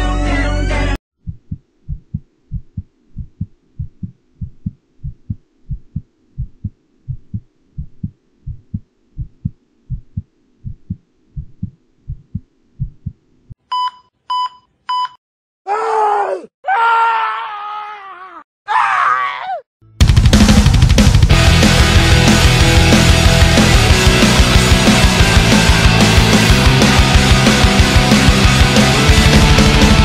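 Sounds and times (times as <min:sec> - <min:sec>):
heartbeat thumps: 0:01.2 - 0:13.3.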